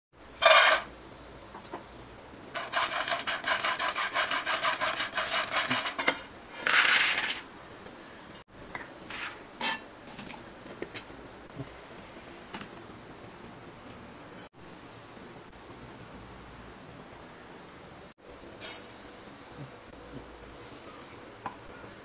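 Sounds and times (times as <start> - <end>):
rhythmic rubbing or scraping strokes: 2.6 - 7.4.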